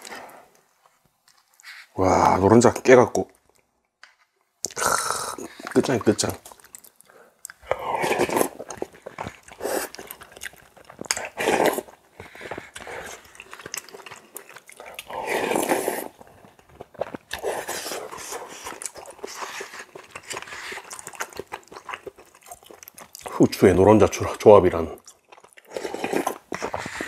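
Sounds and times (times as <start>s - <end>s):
person chewing food: 0.0s - 1.9s, 4.6s - 23.6s, 25.0s - 27.0s.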